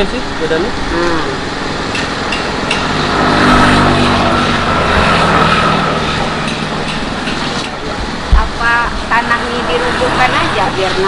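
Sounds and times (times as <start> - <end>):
vehicle passing by: 0.4 - 11.0.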